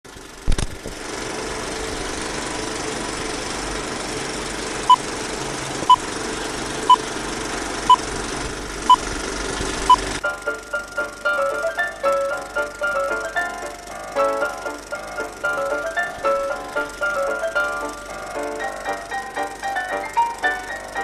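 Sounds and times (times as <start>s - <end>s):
film projector whirring: 0.1s - 21.0s
music: 10.2s - 21.0s.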